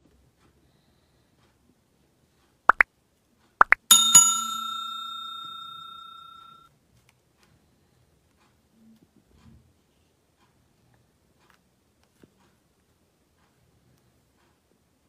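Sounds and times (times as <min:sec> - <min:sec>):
bell ding: 0:03.9 - 0:06.6.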